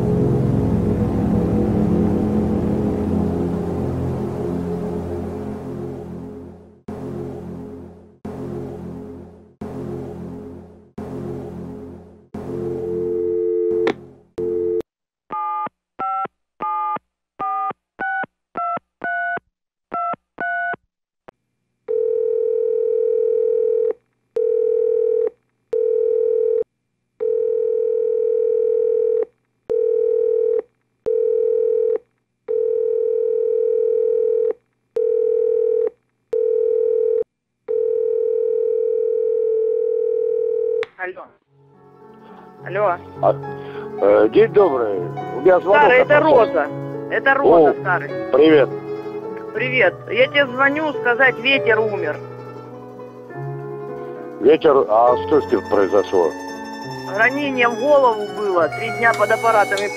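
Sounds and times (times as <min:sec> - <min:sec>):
telephone ringing tone: 0:12.8 - 0:14.8, 0:21.9 - 0:26.6, 0:27.2 - 0:40.8
telephone dial tone: 0:21.9 - 0:26.6, 0:27.2 - 0:40.8.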